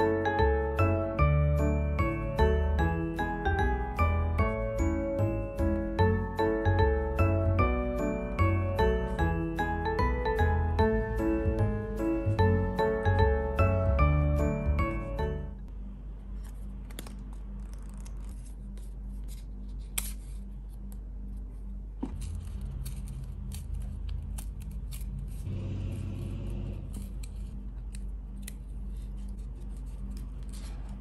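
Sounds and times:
low steady hum: 0.0 - 31.0
paper sticker crackling: 16.4 - 21.0, 22.0 - 31.0
paper rustle: 16.6 - 20.5, 28.6 - 31.0.

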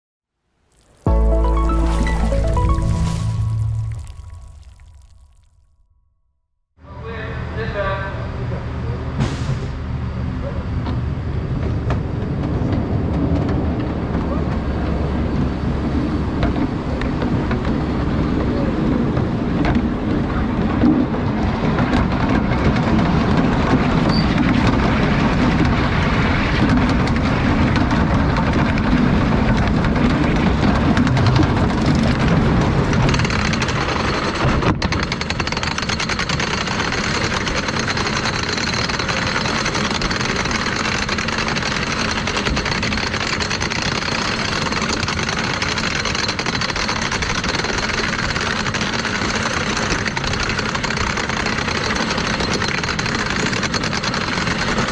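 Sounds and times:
roller coaster rumbling on track: 6.9 - 54.9
lift hill chain rattling: 21.5 - 54.9.

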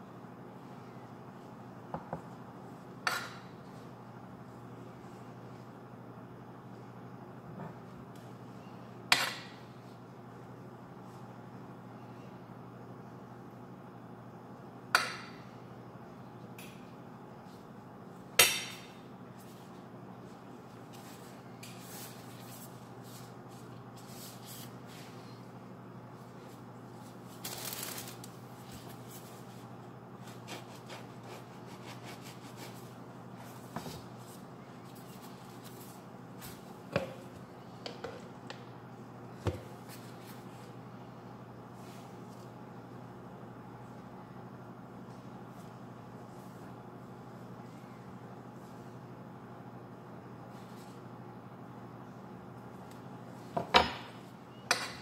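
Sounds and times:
steady low hum: 0.0 - 55.0
utensil scraping bread: 30.2 - 32.9.

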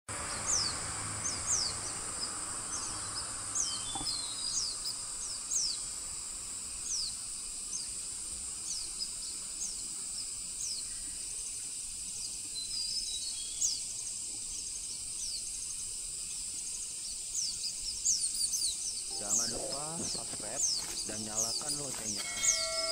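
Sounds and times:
high-pitched hiss: 0.2 - 22.9
bird high thin calls: 19.1 - 22.9.

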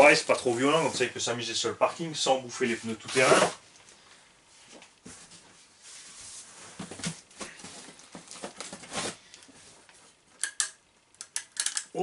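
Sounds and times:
packaging rustling and scraping: 5.1 - 9.9
sharp metal clicks: 10.4 - 12.0.

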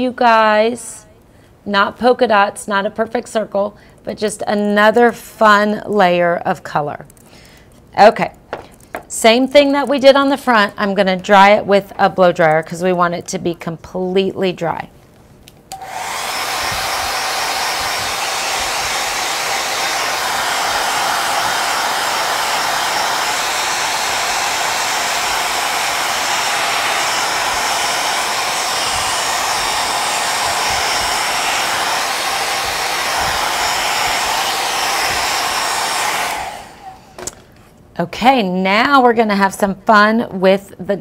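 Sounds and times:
blow dryer running: 15.7 - 37.5.

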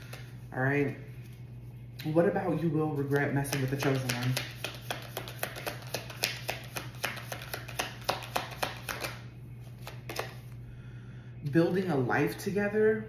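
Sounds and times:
cards being shuffled: 3.0 - 10.6.

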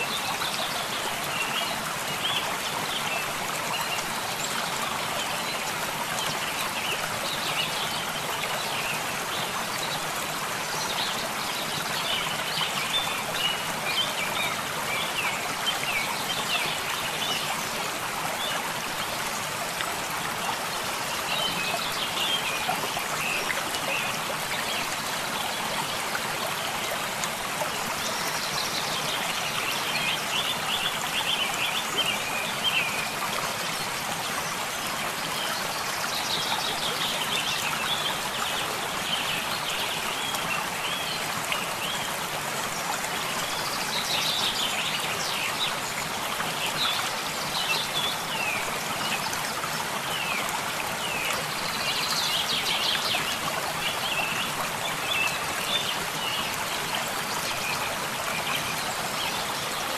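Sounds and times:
stream running: 0.0 - 59.9.

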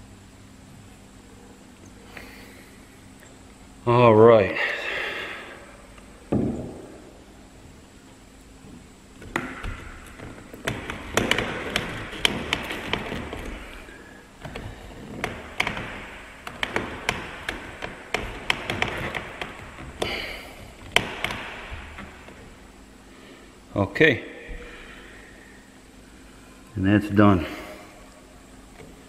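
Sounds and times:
plastic scraping: 8.6 - 22.6
plastic tapping and knocking: 9.2 - 13.8.

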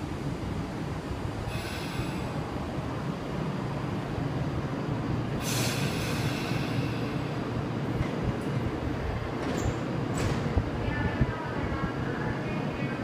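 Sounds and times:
air brakes hissing: 1.4 - 2.6, 5.4 - 7.5.

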